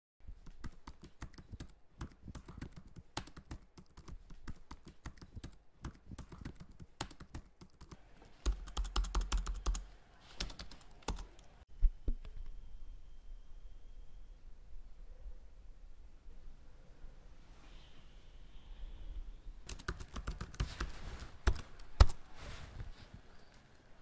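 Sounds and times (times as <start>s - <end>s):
typing on computer keyboard: 0.4s - 11.5s, 19.7s - 22.2s.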